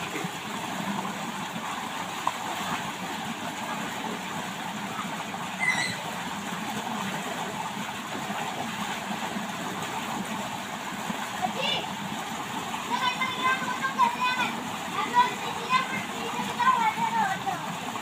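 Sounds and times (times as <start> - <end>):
running water: 0.0 - 18.0
high squeal: 5.6 - 6.1.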